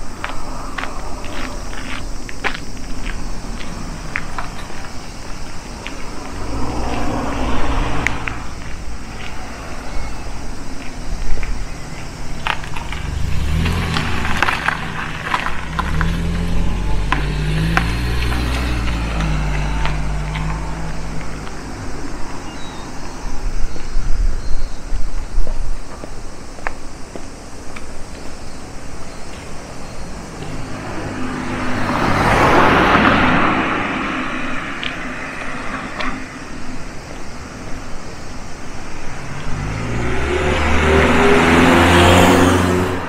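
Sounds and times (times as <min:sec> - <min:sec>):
crunching footsteps: 0:00.0 - 0:22.2, 0:25.0 - 0:28.4
car engine passing by: 0:02.8 - 0:10.6, 0:11.6 - 0:22.9, 0:30.1 - 0:37.9, 0:38.9 - 0:43.0.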